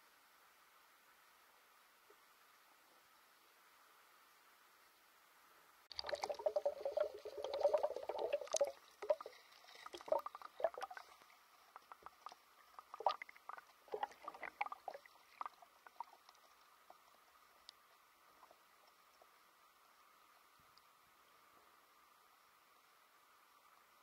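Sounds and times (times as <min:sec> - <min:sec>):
underwater bubble pops: 0:05.9 - 0:09.3, 0:09.9 - 0:11.2, 0:11.8 - 0:16.1
water splashing and bubbling: 0:05.9 - 0:19.4.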